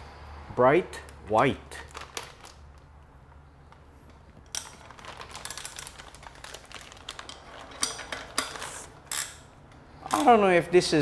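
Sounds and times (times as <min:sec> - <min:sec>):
packaging rustling: 0:01.8 - 0:02.9, 0:03.6 - 0:09.0.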